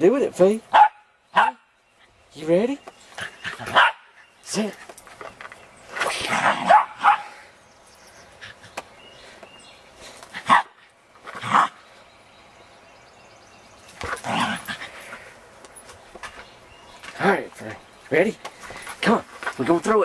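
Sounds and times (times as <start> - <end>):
small dogs barking: 0.7 - 1.7, 3.5 - 4.2, 6.3 - 7.4, 10.4 - 10.8.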